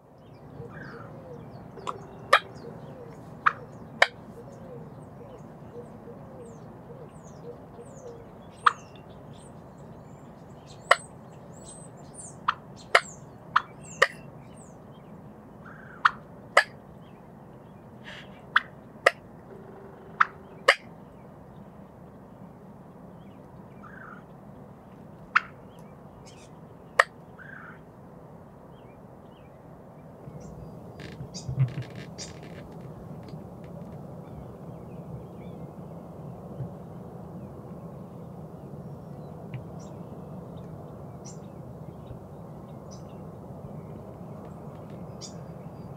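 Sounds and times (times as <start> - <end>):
soft outdoor background: 0.0 - 45.9
wild turkey clucking: 0.6 - 4.6, 18.1 - 20.9.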